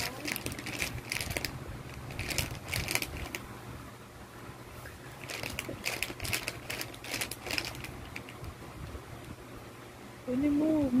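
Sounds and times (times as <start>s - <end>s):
plastic pack crinkling: 0.0s - 3.4s, 5.1s - 8.5s
faint low hum: 0.0s - 11.0s.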